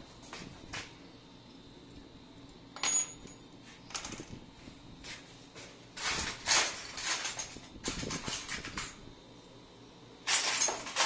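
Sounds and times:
steel parts clinking on metal: 6.0s - 9.0s, 10.2s - 11.0s.

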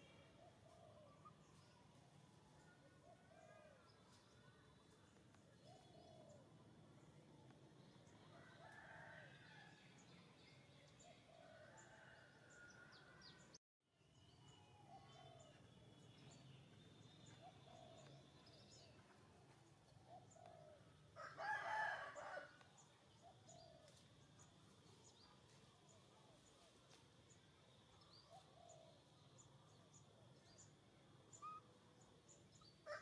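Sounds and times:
faint birdsong: 0.0s - 33.0s
rooster crowing: 21.2s - 22.6s.

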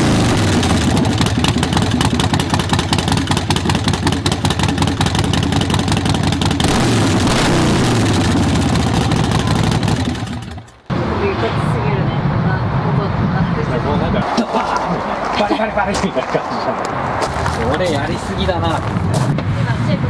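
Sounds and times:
loud motorcycle engine revving: 0.0s - 11.3s.

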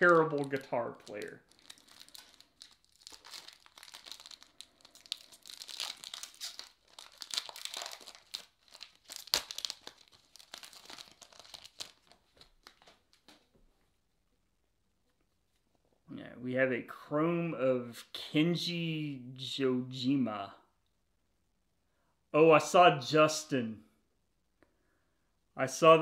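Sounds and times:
foil wrapper tearing and crinkling: 0.0s - 13.4s.

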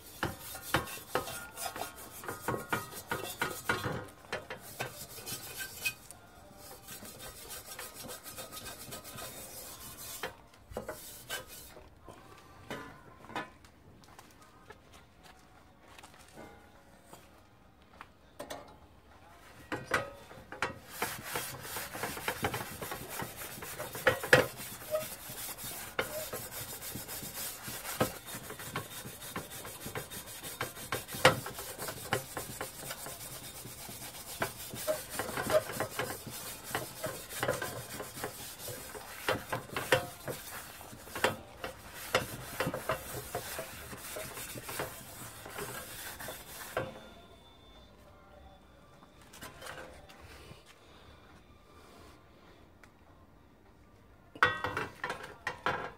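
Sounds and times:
pad scraping inside copper pan: 0.0s - 6.1s, 6.7s - 11.8s, 20.7s - 46.9s.

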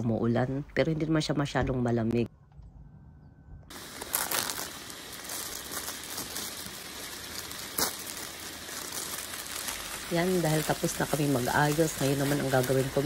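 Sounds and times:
frying pan sizzling: 3.7s - 13.0s
plastic bag crinkling: 3.7s - 13.0s.

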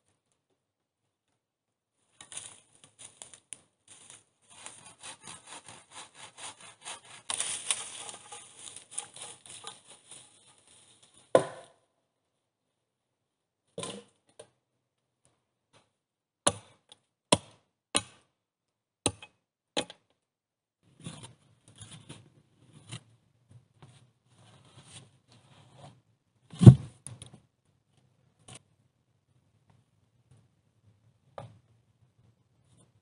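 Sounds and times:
shovel scraping in sandy soil: 3.9s - 11.1s
chopping blows on wood: 11.4s - 11.7s.

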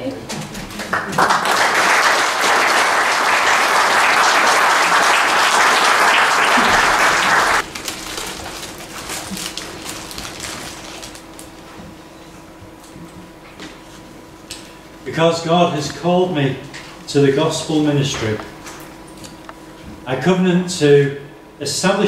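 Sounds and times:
congregation applauding: 0.7s - 7.8s.

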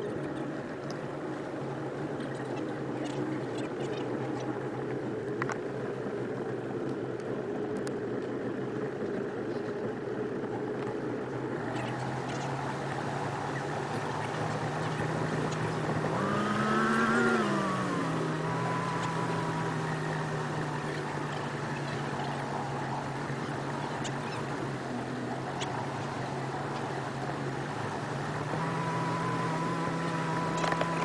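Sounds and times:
outboard engine running: 0.0s - 31.0s
water and wind hiss: 11.6s - 31.0s.

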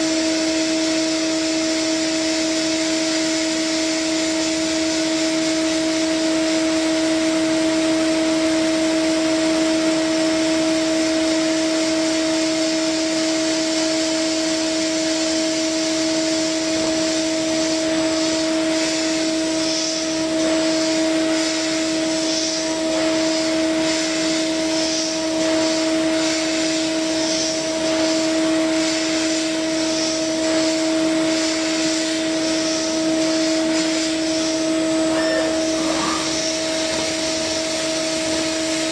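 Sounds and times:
milling spindle whine: 0.0s - 38.9s
metal cutting hiss: 12.1s - 38.9s.

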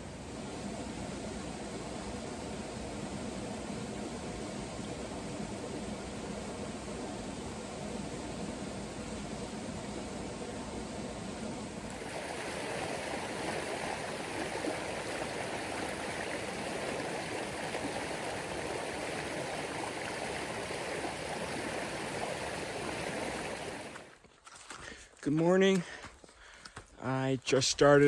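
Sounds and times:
creek babbling over rocks: 11.9s - 24.8s.

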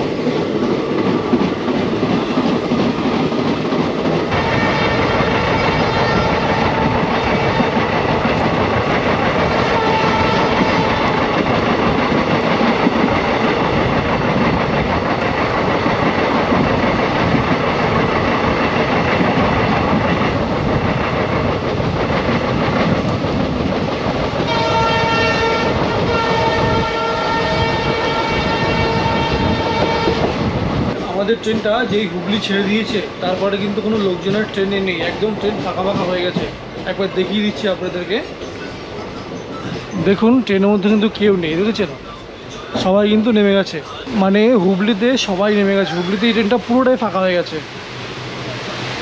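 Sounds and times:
train wheels on rails: 0.0s - 49.0s
wind: 0.0s - 49.0s
locomotive horn blasts: 4.3s - 7.6s, 9.6s - 10.9s, 24.5s - 30.2s.

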